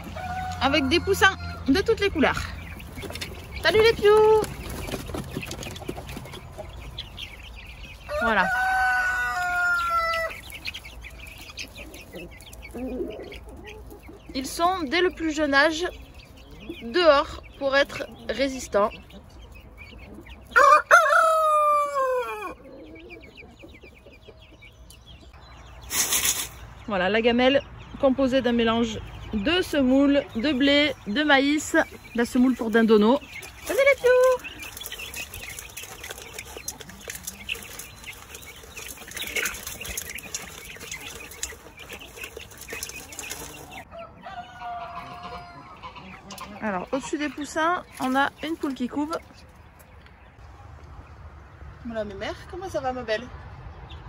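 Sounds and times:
rooster crowing: 0:00.0 - 0:01.7, 0:08.1 - 0:10.5, 0:20.5 - 0:22.7, 0:43.9 - 0:46.1
chicks peeping: 0:00.0 - 0:54.0.

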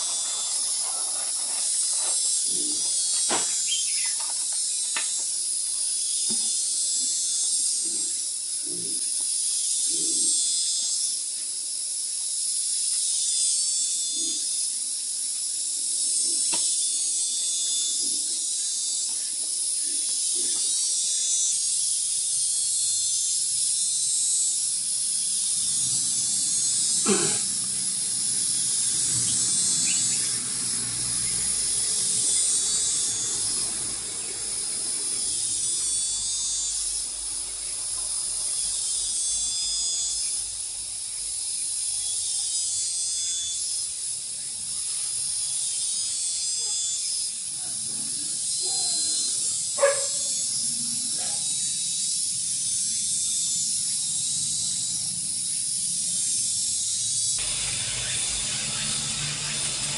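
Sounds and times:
cicadas droning: 0:00.0 - 0:59.9.

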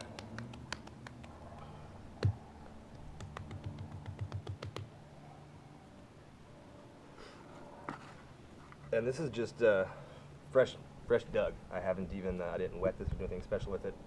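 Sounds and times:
hands patting clay: 0:00.0 - 0:02.4, 0:03.0 - 0:04.9.

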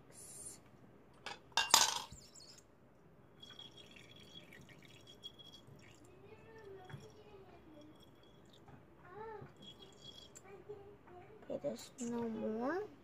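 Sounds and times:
liquid pouring into glass bowl: 0:03.4 - 0:08.8, 0:09.5 - 0:10.4
faint trickle: 0:03.4 - 0:10.6.

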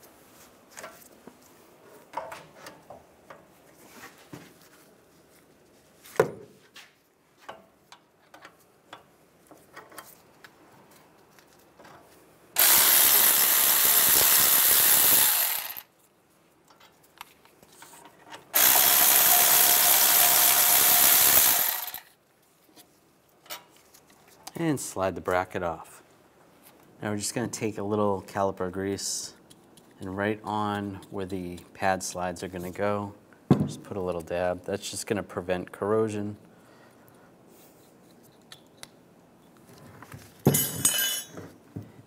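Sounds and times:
power ratchet running: 0:12.6 - 0:15.9, 0:18.6 - 0:22.1
hand tools clicking on bolts: 0:18.3 - 0:22.1.

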